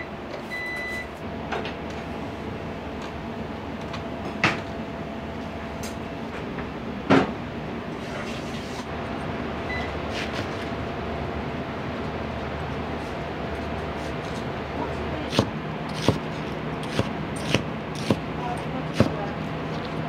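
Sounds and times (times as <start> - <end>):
kitchen hum: 7.9 - 11.4, 13.8 - 20.0.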